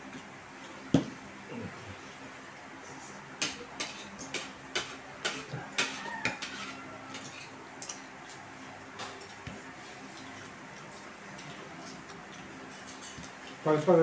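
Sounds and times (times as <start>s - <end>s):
cutlery clinking against dishes: 3.4s - 8.0s.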